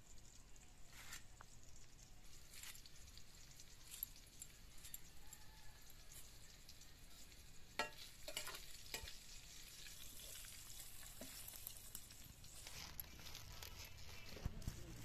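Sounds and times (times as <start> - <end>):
meat sizzling in a pan: 0.0 - 15.0
metal spoon clinking and scraping: 3.8 - 5.4, 7.8 - 9.3.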